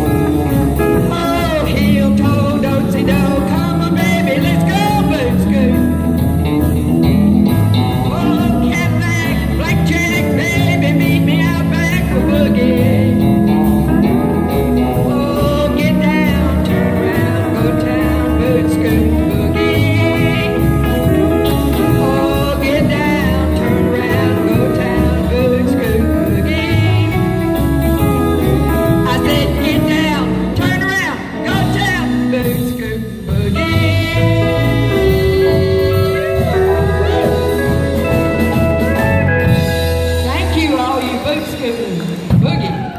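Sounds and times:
pedal steel guitar: 0.0 - 42.1
country band playing: 0.0 - 42.9
gliding steel guitar notes: 33.8 - 40.8.

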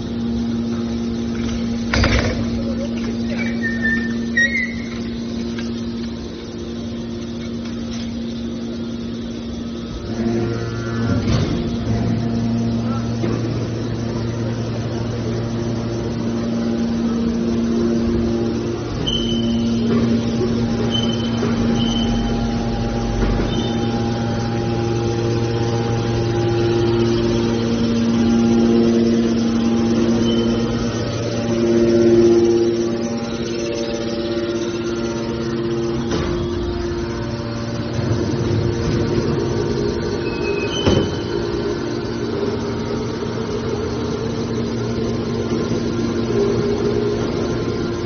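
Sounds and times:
hydraulic power unit humming: 0.0 - 48.0
brief high squeal: 3.4 - 5.0, 19.0 - 19.8.

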